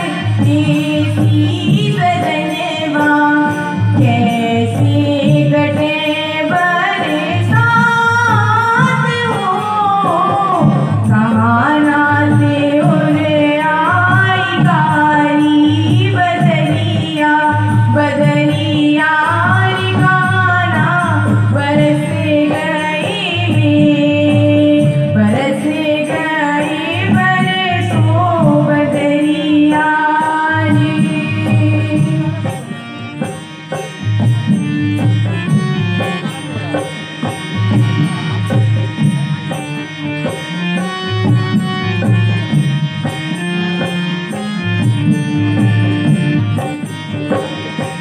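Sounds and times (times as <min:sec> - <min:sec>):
woman singing folk song: 0:00.0 - 0:32.4
harmonium drone: 0:00.0 - 0:48.0.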